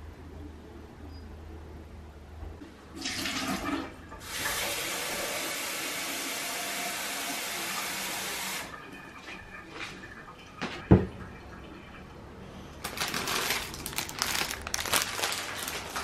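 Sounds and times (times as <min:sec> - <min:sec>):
tap water running into sink: 0:03.0 - 0:09.9.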